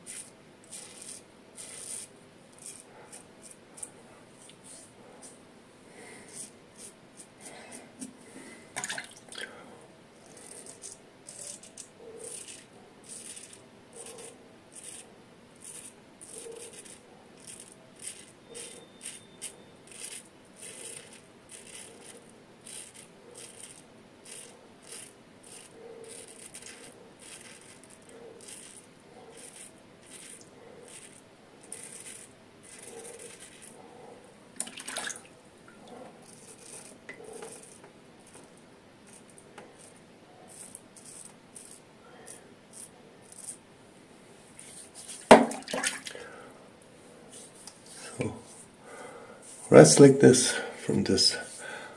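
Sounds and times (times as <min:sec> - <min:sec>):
razor scraping stubble: 0:00.0 - 0:05.4, 0:06.1 - 0:07.8, 0:10.2 - 0:33.8, 0:36.2 - 0:43.6.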